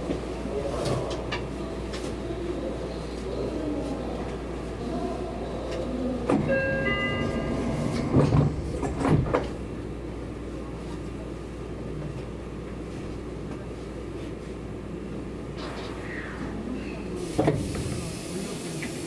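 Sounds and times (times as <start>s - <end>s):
stopped train humming: 0.0s - 12.8s
door chime tones: 6.4s - 8.4s
sliding doors thudding shut: 7.8s - 9.6s.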